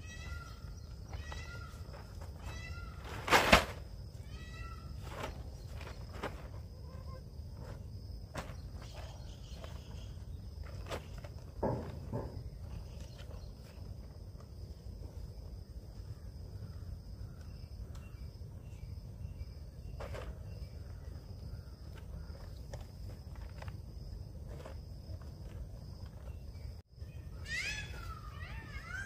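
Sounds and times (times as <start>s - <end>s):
rustles: 0.0s - 26.8s
high insect drone: 0.0s - 29.0s.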